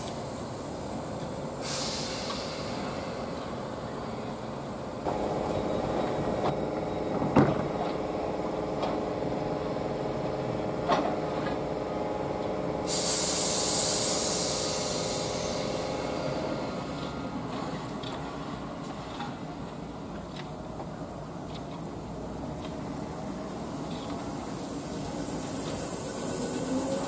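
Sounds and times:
train equipment humming: 0.0 - 27.0
compressed air hiss: 1.5 - 3.4, 12.8 - 16.8.

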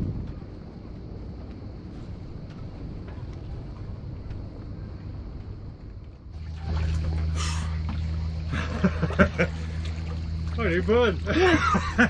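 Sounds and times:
wind on microphone: 0.0 - 7.6
boat engine rumble: 0.0 - 12.0
low hum: 0.0 - 12.0
water splashing: 6.3 - 12.0.

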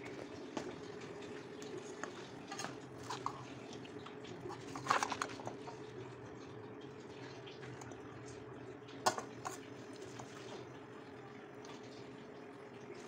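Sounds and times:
kitchen utensils clicking and knocking: 4.5 - 5.6, 9.1 - 9.7.

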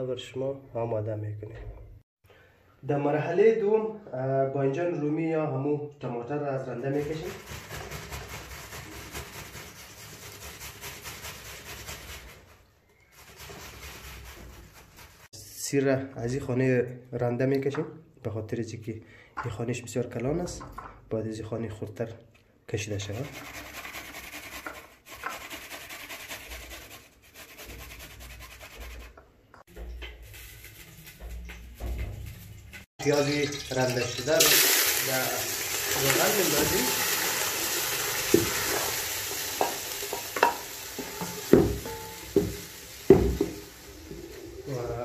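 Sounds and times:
tomato grated on metal grater: 7.0 - 15.3, 23.3 - 29.1.

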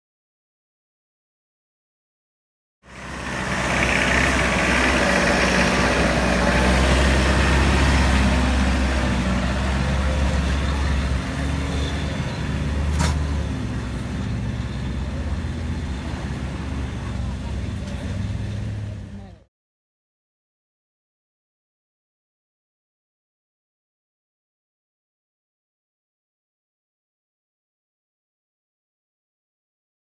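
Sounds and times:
vehicle engine running: 2.8 - 19.5.

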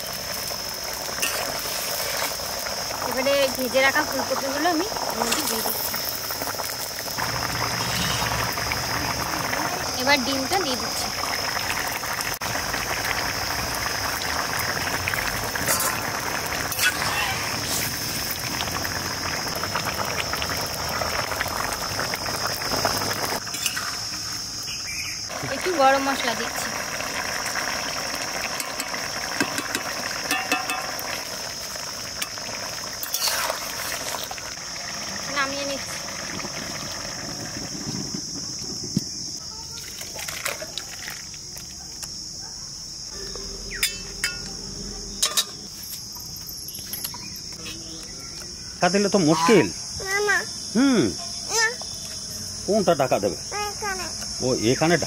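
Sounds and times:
curry bubbling and popping: 0.0 - 42.2
crickets chirring: 0.0 - 55.0
ladle clinking on pan: 28.6 - 31.0, 43.8 - 44.5, 45.2 - 45.6
ladle scraping metal pan: 33.0 - 34.3.

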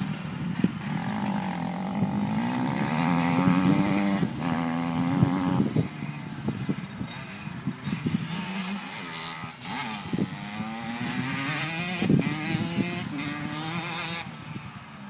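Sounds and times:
dirt bike engine revving: 0.0 - 5.9, 7.2 - 14.3.

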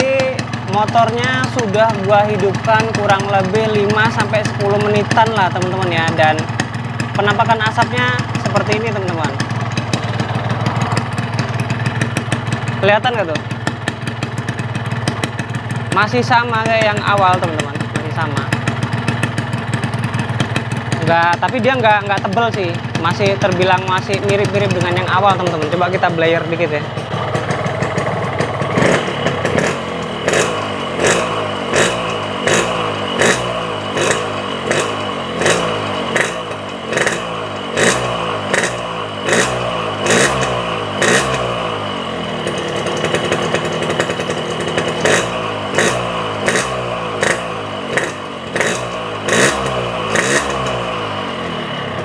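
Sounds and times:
motorcycle engine revving: 0.0 - 52.0.

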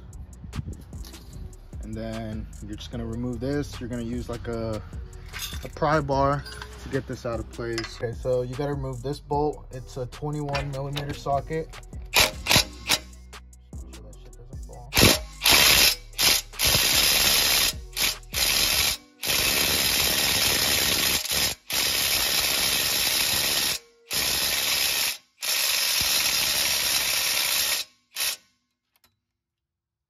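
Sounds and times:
impact gun hammering: 12.1 - 13.1, 14.9 - 22.1.

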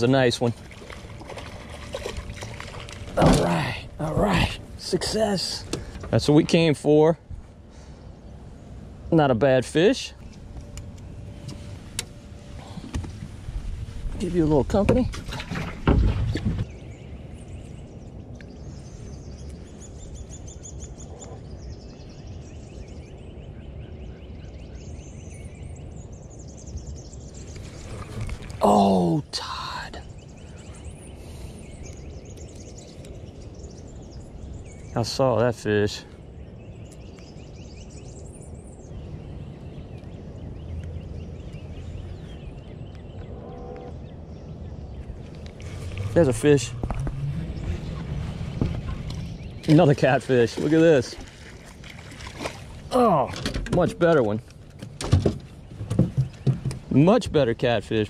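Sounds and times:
low background rumble: 0.0 - 50.7
birds chirping trills: 0.0 - 58.0
bird chirps: 29.6 - 51.7.

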